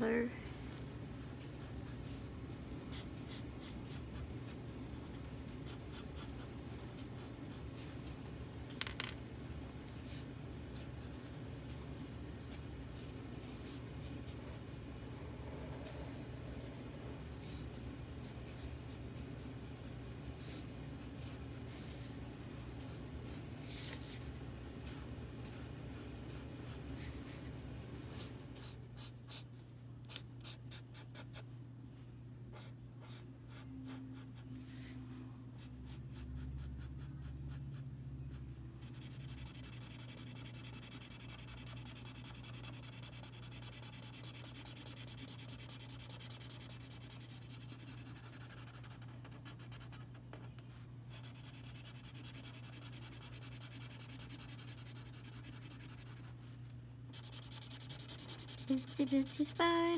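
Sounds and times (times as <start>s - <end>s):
low steady hum: 0.0s - 59.9s
marker drawing on paper: 38.8s - 50.0s, 51.1s - 56.3s, 57.1s - 59.9s.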